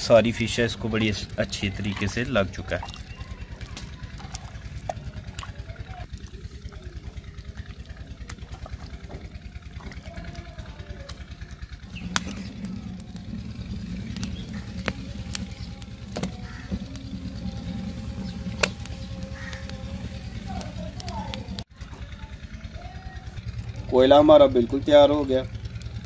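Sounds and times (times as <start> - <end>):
deep hum: 0.0 - 26.0
engine chugging: 0.0 - 26.0
sharp clicks: 14.0 - 17.6.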